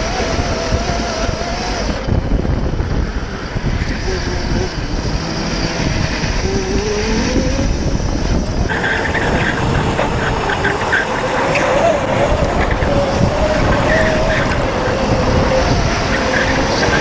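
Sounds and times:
electric motor whine: 0.0s - 17.0s
wind and road noise: 0.0s - 17.0s
tyres squealing: 8.7s - 17.0s.

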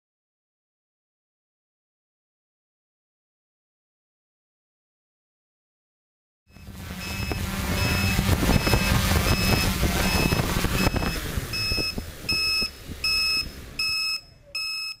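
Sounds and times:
drone motor and propellers: 6.5s - 14.9s
high electronic beeps: 6.5s - 15.0s.

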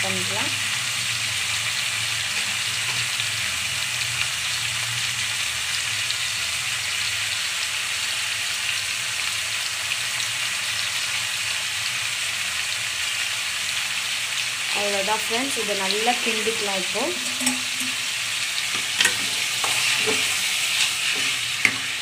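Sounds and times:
chicken sizzling in hot oil: 0.0s - 22.0s.

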